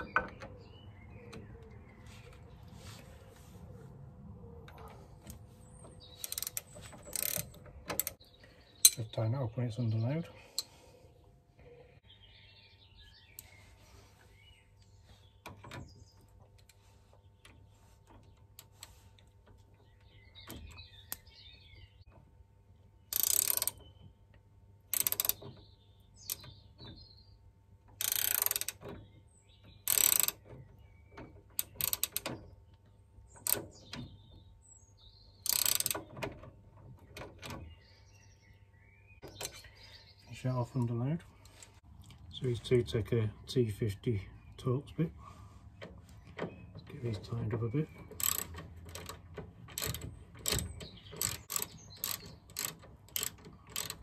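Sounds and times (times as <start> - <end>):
birds chirping: 0.0 - 54.0
ratcheting spanner clicking: 6.2 - 8.2, 23.1 - 23.8, 24.9 - 25.5, 28.0 - 28.9, 29.8 - 30.4, 31.6 - 32.3, 35.4 - 36.2, 48.1 - 54.0.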